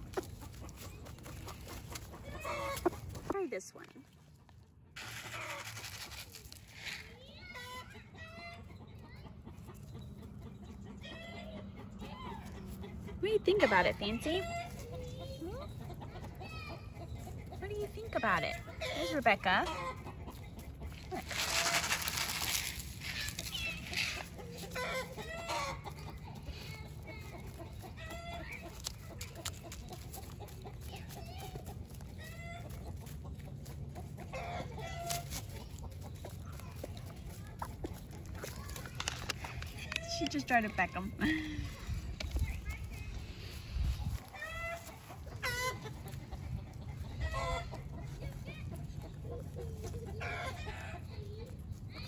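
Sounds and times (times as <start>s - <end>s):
hens clucking: 0.0s - 52.0s
grain rattling onto grass: 5.0s - 7.1s, 21.0s - 24.3s.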